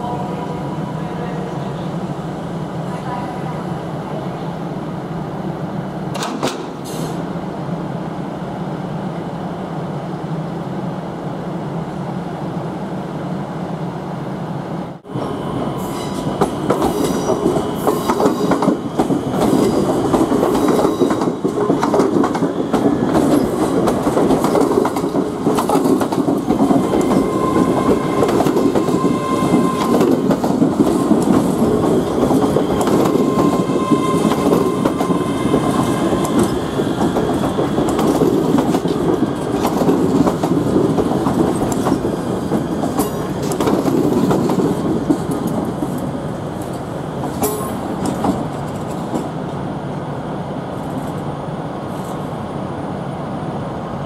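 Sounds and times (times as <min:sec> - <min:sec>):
train running past: 0:00.0 - 0:54.0
wheels clicking over rail joints: 0:36.0 - 0:49.4.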